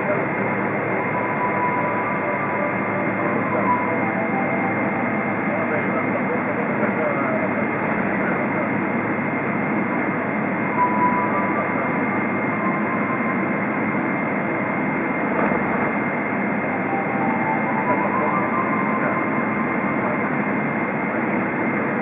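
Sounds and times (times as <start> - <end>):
thin high whine: 0.0 - 7.6, 10.6 - 22.0
jet engines idling: 0.0 - 22.0.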